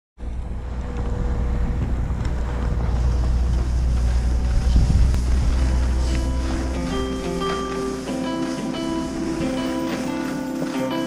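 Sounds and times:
wind buffeting microphone: 0:00.2 - 0:07.4.

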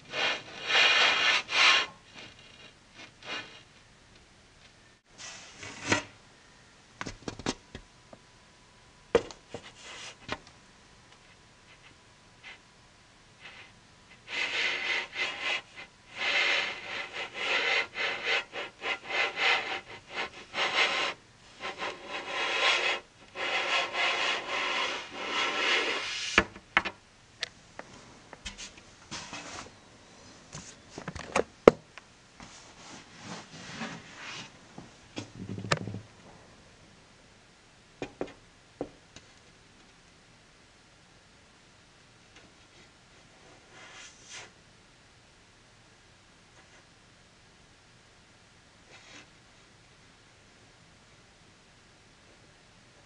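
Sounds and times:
rough rubbing and scraping: 0:00.1 - 0:03.6, 0:14.3 - 0:26.4.

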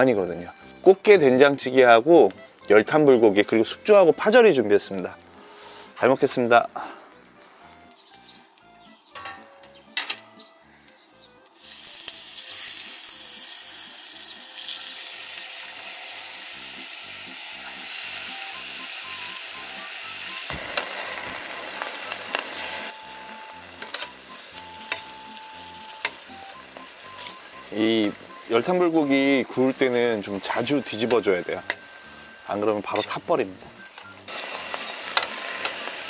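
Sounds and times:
meat sizzling on a hot grill: 0:11.5 - 0:36.0.

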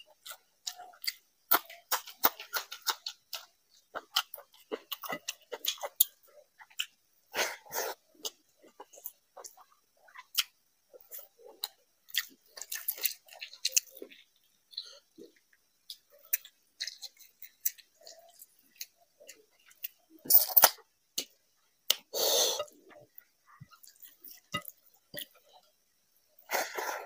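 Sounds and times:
wet chewing and mouth clicks: 0:00.0 - 0:07.0, 0:08.1 - 0:22.1.

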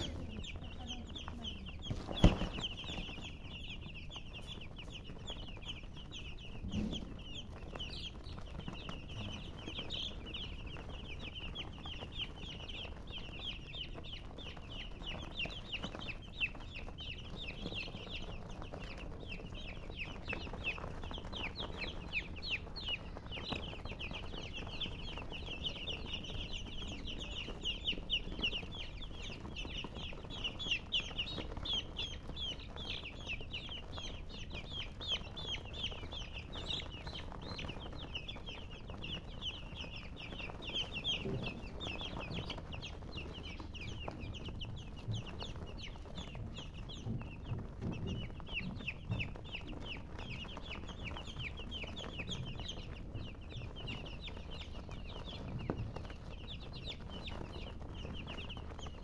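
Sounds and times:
baby chicks peeping: 0:00.0 - 0:59.0.

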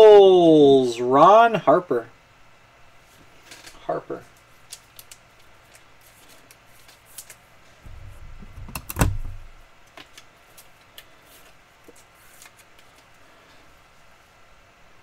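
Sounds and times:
trading cards rustling and clicking: 0:03.4 - 0:13.2.

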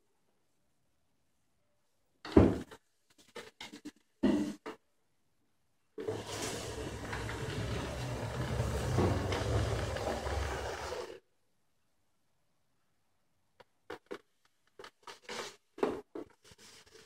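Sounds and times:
scrubbing hiss: 0:06.0 - 0:11.2.

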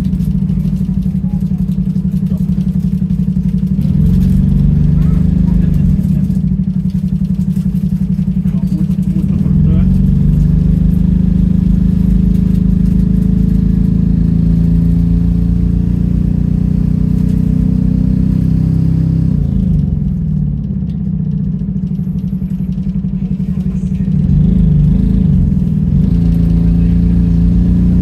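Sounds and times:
bus engine droning: 0:00.0 - 0:28.0.

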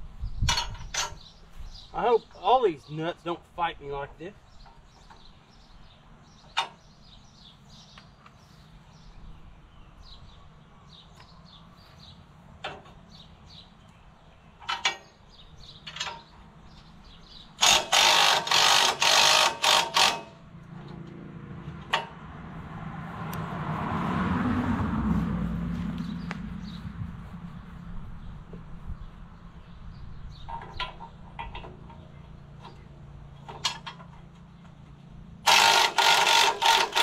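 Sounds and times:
footsteps through grass: 0:25.0 - 0:29.3
rapid metallic rattling: 0:35.4 - 0:37.0.

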